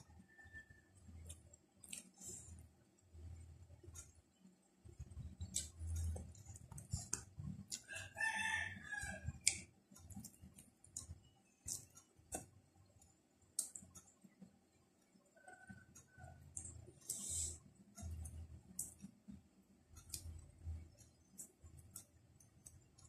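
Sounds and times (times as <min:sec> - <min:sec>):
chewing and mouth clicks: 0:01.1 - 0:02.6, 0:05.0 - 0:07.9, 0:09.0 - 0:14.1, 0:15.0 - 0:19.3, 0:19.9 - 0:23.0
rooster crowing: 0:07.8 - 0:09.4.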